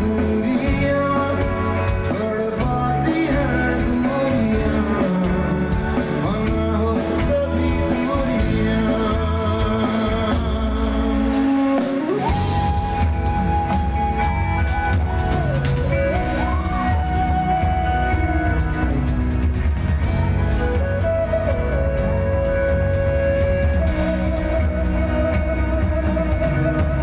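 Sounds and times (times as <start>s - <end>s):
man singing: 0.0s - 12.3s
live rock band playing: 0.0s - 27.0s.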